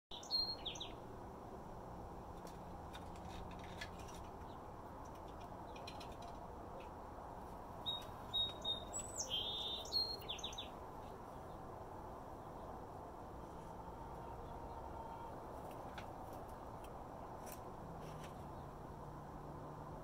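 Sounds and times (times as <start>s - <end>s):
small birds chirping: 0.1s - 1.0s, 7.8s - 11.7s.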